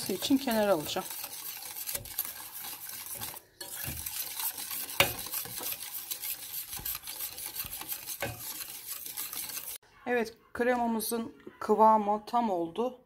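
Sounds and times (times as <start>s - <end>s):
whisk scraping metal saucepan: 0.0s - 9.8s.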